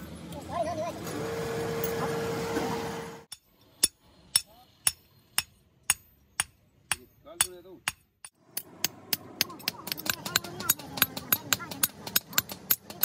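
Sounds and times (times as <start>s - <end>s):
hammer striking metal on anvil: 3.3s - 13.0s.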